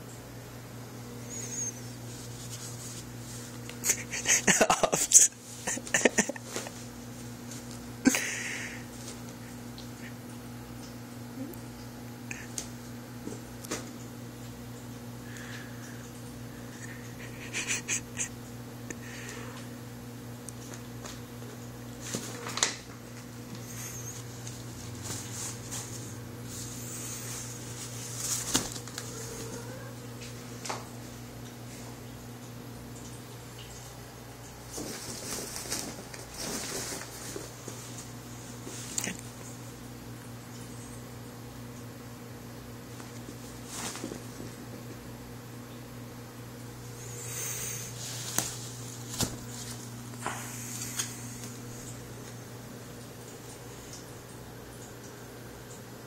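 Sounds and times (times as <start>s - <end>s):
low steady hum: 0.0s - 56.0s
kittens scuffling on carpet: 1.2s - 4.2s, 5.4s - 7.9s, 20.6s - 31.9s, 34.7s - 39.3s, 42.9s - 45.0s, 46.9s - 52.4s.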